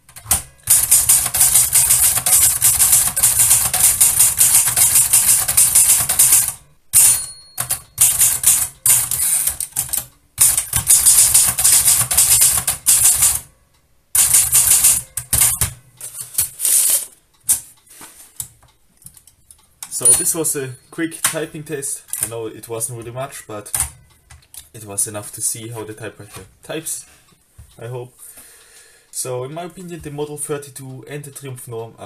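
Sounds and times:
typewriter typing: 0.0s - 13.5s, 14.2s - 17.7s
typewriter bell ring: 0.2s - 13.5s, 14.2s - 15.6s, 20.0s - 21.7s.

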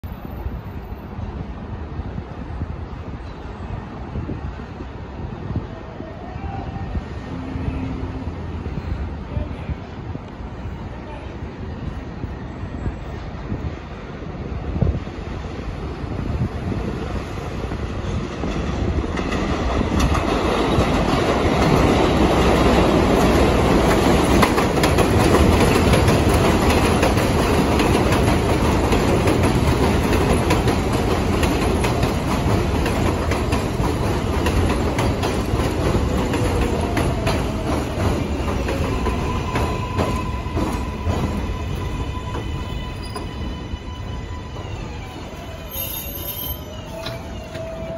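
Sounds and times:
subway train rumble and wheel clatter: 0.0s - 47.9s
train brakes whining and squealing: 35.0s - 47.9s.

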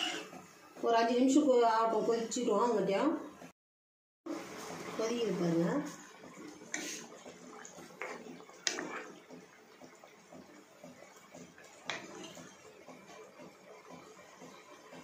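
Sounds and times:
gravy bubbling: 4.3s - 15.0s.

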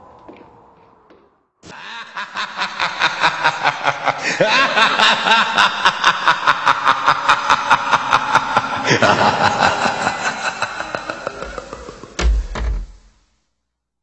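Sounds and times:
cackling laughter: 1.6s - 12.2s.

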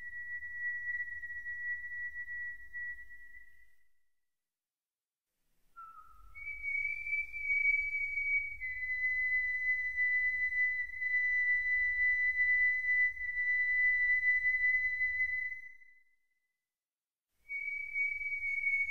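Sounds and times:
high whistle-like tone: 5.8s - 16.2s, 17.5s - 18.9s.

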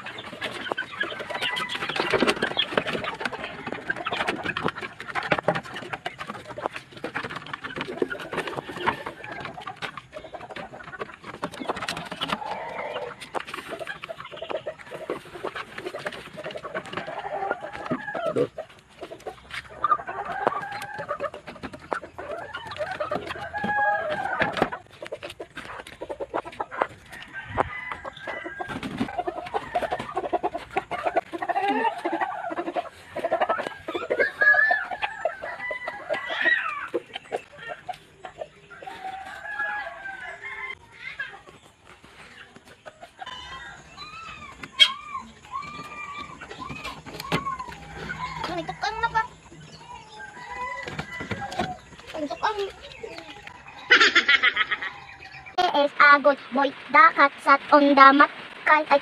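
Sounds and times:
chickens clucking and squawking: 0.0s - 59.0s
rooster crowing: 27.2s - 28.8s, 38.8s - 40.8s, 43.3s - 49.3s, 50.0s - 51.8s.

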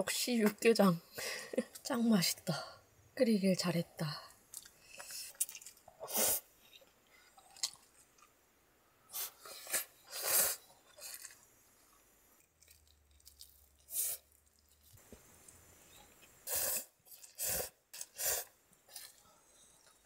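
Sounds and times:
chewing noises: 4.5s - 6.0s, 6.7s - 8.4s, 10.7s - 16.4s
noodle slurping: 9.2s - 11.4s, 16.4s - 19.3s.

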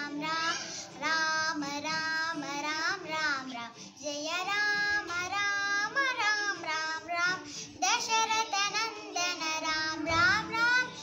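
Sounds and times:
girl singing devotional song: 0.0s - 11.0s.

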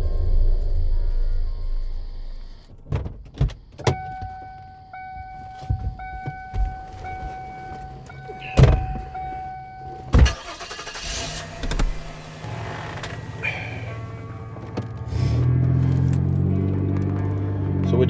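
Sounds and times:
car doors shutting: 2.7s - 15.2s
car doors opening: 2.8s - 16.2s
car warning chime: 3.8s - 15.1s.

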